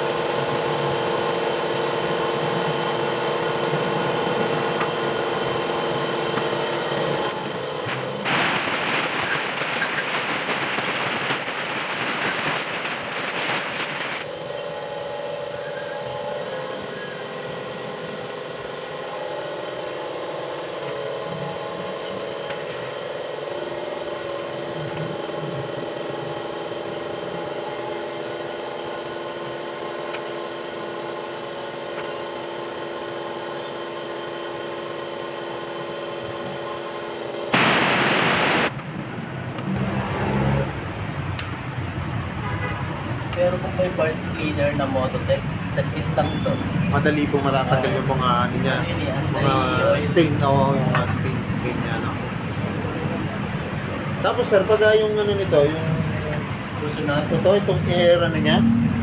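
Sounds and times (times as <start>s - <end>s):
steady mechanical hum: 0.0s - 59.0s
compressed air hissing from blow gun: 7.3s - 14.4s, 37.6s - 38.7s
faint high hiss: 37.6s - 38.7s.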